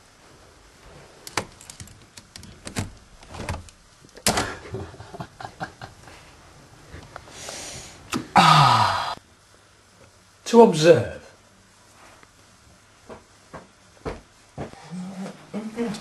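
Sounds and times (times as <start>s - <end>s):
short hiss: 7.3s - 8.3s.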